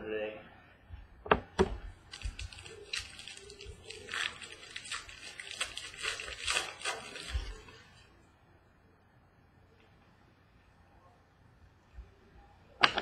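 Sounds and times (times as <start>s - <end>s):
foil card packs rustling: 1.9s - 8.0s.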